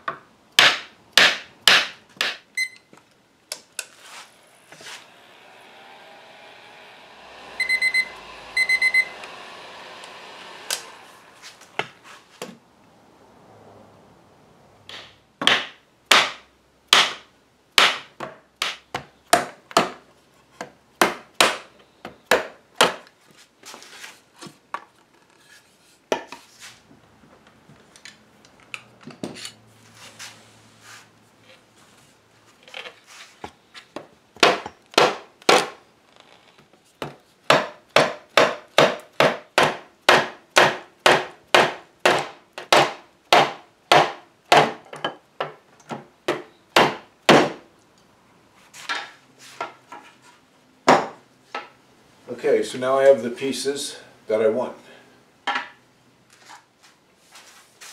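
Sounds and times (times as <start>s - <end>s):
wood scraping: 3.8s - 5.7s, 7.1s - 12.6s, 23.2s - 26.9s.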